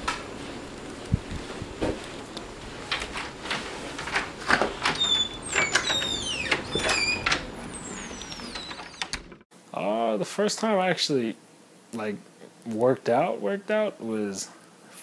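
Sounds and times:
door clicks and knocks: 4.0 - 9.4
door squeaking: 4.5 - 9.4.

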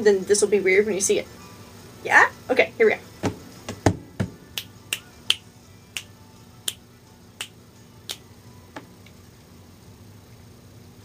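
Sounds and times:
fingers snapping: 4.6 - 5.4, 7.4 - 8.2.

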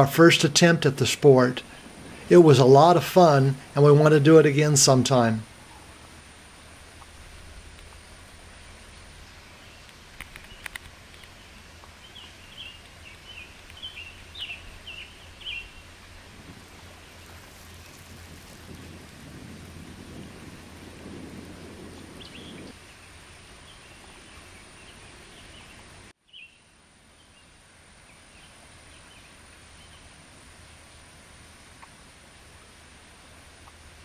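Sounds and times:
wind buffeting microphone: 0.0 - 25.6.

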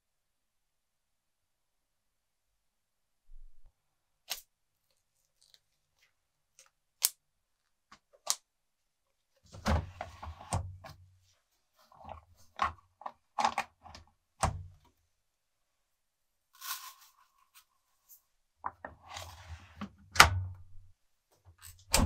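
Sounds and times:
plastic drawer sliding open: 9.5 - 10.7, 18.9 - 20.4.

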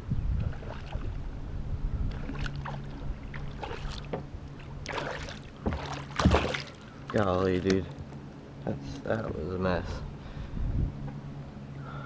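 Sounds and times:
wind buffeting microphone: 0.0 - 7.9, 9.6 - 11.2
water splashing: 2.1 - 8.0.

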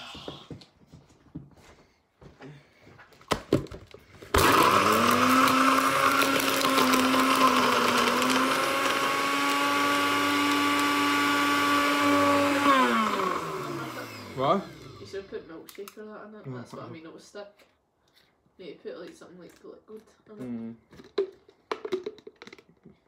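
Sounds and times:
blender motor whining: 4.3 - 15.5.

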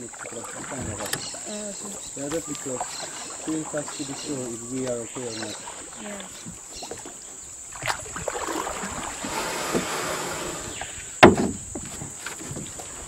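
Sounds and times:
paddle splashing through water: 0.0 - 13.0
loud thump: 11.2 - 11.8
knocks on wooden boat: 11.2 - 12.8.

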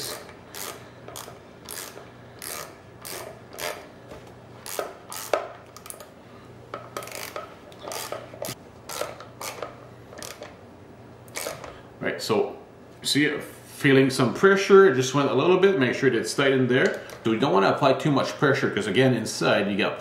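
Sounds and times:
wrench turning a bolt: 0.0 - 3.9, 4.6 - 6.1, 7.0 - 10.5, 11.3 - 11.7.

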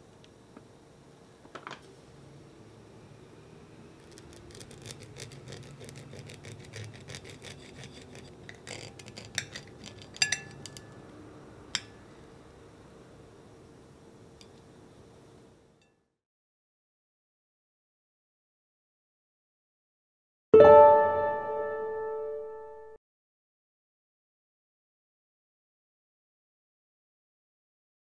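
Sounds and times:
knife cutting soft wet fruit: 4.0 - 11.0
metal clinking on plate: 9.3 - 10.9.

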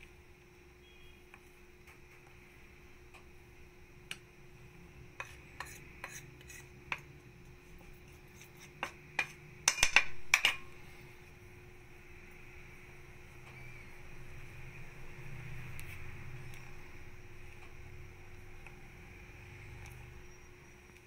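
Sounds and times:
spatula tapping metal bowl: 5.2 - 7.1, 8.4 - 10.7.

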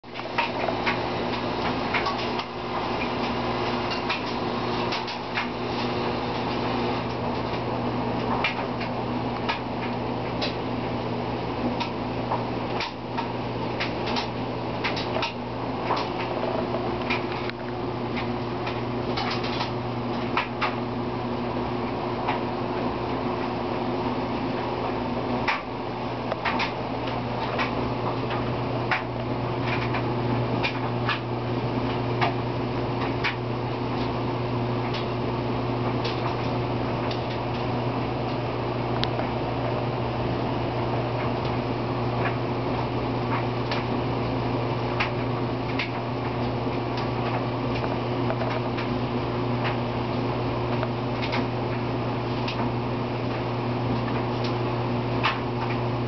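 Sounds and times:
low mechanical hum: 0.0 - 56.0.

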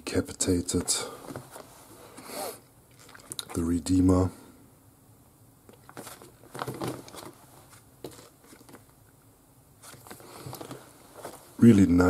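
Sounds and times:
plastic pages crinkling: 5.7 - 9.0, 9.8 - 11.4.

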